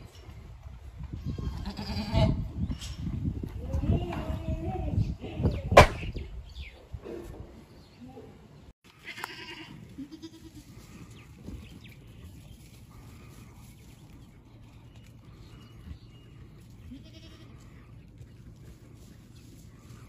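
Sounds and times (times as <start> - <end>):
goats bleating: 8.9 - 10.9, 16.8 - 18.0.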